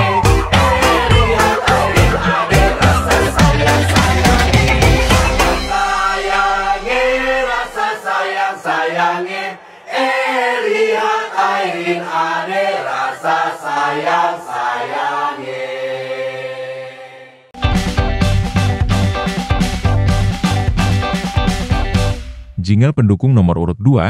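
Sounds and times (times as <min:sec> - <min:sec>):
deep bass: 0:00.0 - 0:07.7, 0:17.6 - 0:23.8
group of voices singing: 0:00.0 - 0:17.6.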